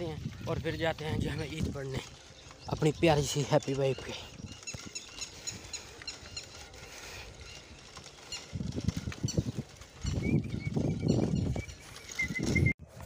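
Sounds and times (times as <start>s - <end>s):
wind buffeting microphone: 0.0s - 13.0s
bicycle rattling hiss: 1.4s - 10.2s.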